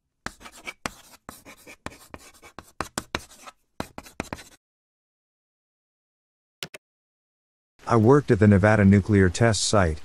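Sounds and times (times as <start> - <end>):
chalk scratching on blackboard: 0.3 - 4.6.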